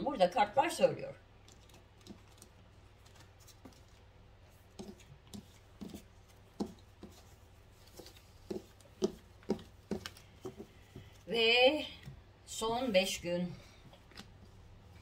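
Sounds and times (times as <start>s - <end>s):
cards tapping and sliding: 4.7s - 11.2s.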